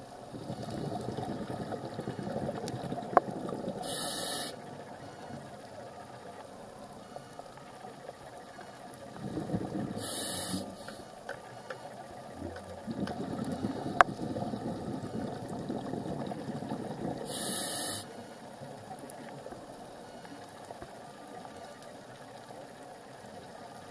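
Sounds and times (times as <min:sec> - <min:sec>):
bubbling of exhaled air: 0:00.2 - 0:06.2, 0:09.0 - 0:11.0, 0:12.2 - 0:18.6
hissing regulator inhalations: 0:00.3 - 0:05.6, 0:09.2 - 0:11.9, 0:12.9 - 0:18.4.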